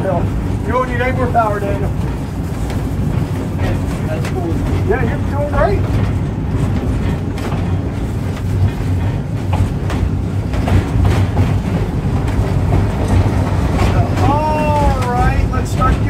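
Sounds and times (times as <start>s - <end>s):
streetcar rumbling: 0.0s - 16.0s
wheels clicking over rails: 0.0s - 16.0s.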